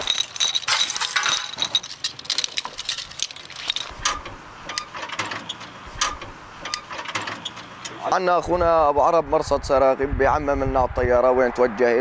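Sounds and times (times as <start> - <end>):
metal cartridges clinking: 0.0 - 4.2.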